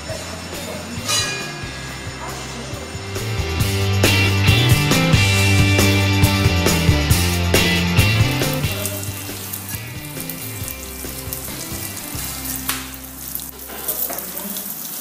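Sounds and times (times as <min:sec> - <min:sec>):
background music: 0:00.0 - 0:13.7
ham sizzling in butter: 0:05.2 - 0:15.0.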